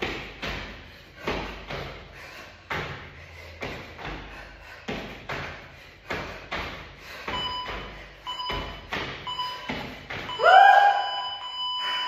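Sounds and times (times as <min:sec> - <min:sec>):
interval timer beeps: 0:07.2 - 0:12.0.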